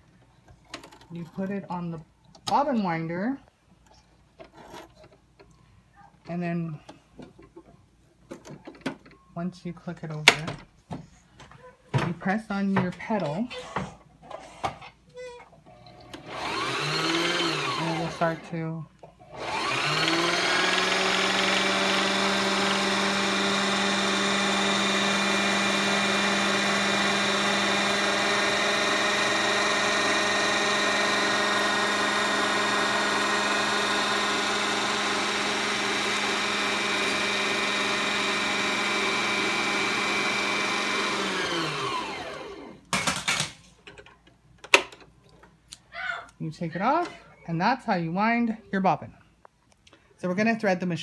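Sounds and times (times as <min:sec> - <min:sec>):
sewing machine motor whirring: 0:15.7 - 0:18.5, 0:19.3 - 0:42.8.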